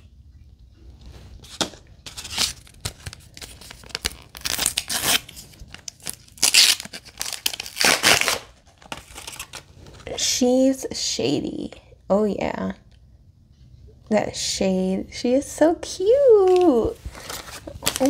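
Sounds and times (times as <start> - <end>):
plastic packaging tearing: 1.4 - 9.6, 17.2 - 18.0
plastic packaging crinkling: 1.4 - 9.7, 16.5 - 18.0.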